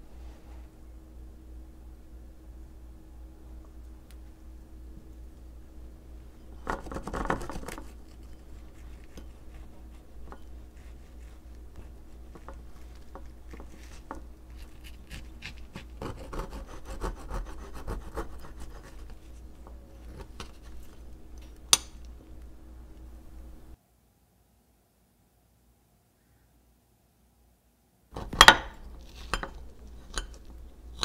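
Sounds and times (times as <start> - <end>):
knife sawing through crisp crust: 6.8 - 19.4.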